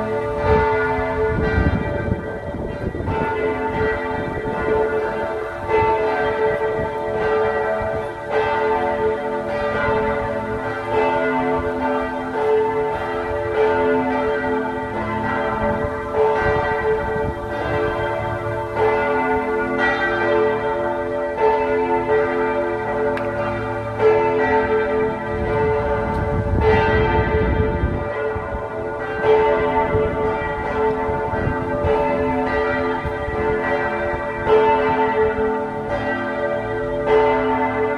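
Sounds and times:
church bells ringing: 0.0 - 37.9.

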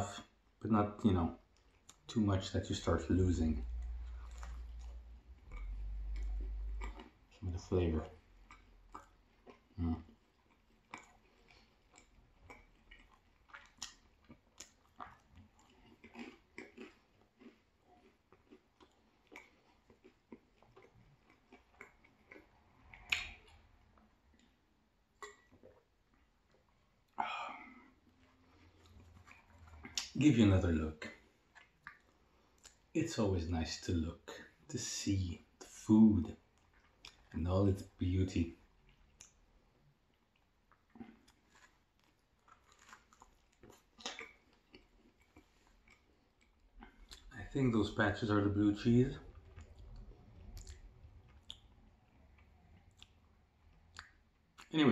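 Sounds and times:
close chewing with wet mouth clicks: 3.7 - 27.2, 27.9 - 30.2, 31.1 - 32.9, 36.4 - 37.4, 38.6 - 47.3, 49.2 - 54.8.

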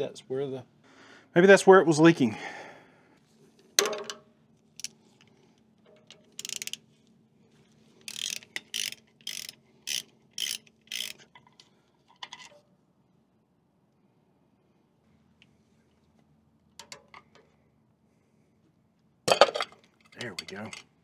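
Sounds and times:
socket ratchet clicking: 6.3 - 6.8, 8.0 - 11.3.

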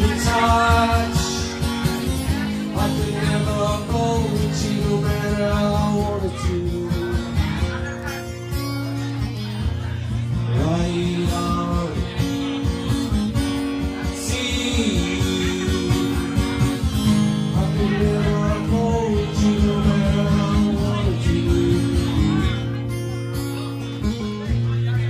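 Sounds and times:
person singing: 0.0 - 1.6, 14.0 - 16.7, 17.4 - 22.6
acoustic guitar strumming: 0.0 - 25.0.

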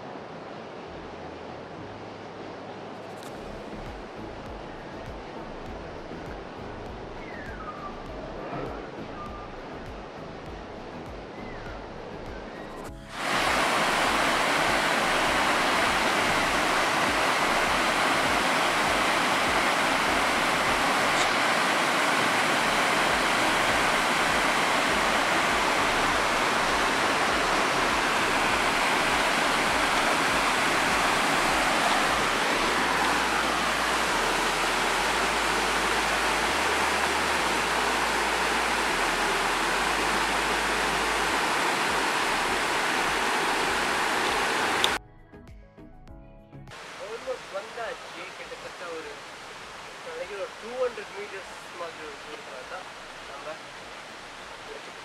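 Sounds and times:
waterfall rushing over rocks: 13.0 - 45.0, 46.8 - 55.0.

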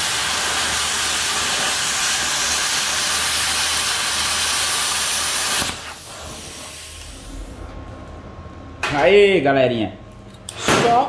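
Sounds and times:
metalworking tool hissing: 0.0 - 7.6
low hum: 7.0 - 9.0.

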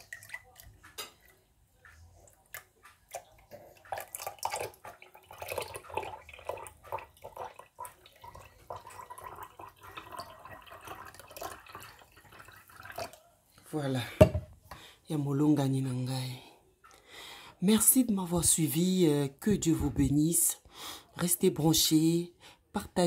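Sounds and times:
liquid splashing and dripping: 0.0 - 13.3
juice pouring into a glass: 3.8 - 13.3.

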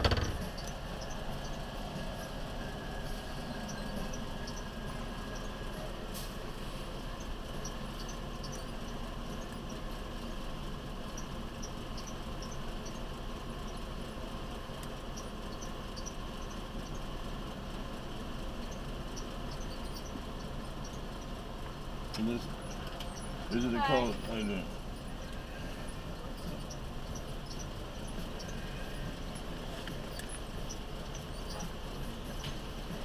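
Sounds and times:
truck engine idling: 0.0 - 33.0
faint high-pitched squeaks: 22.4 - 32.6.

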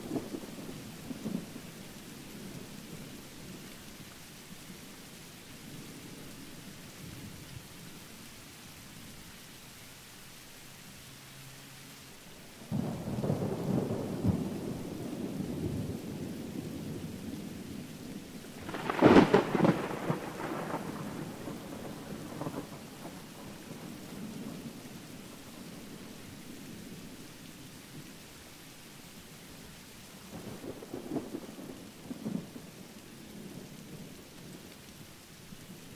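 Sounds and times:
steady rain: 0.0 - 35.9
thunder rumbling: 12.7 - 27.3.

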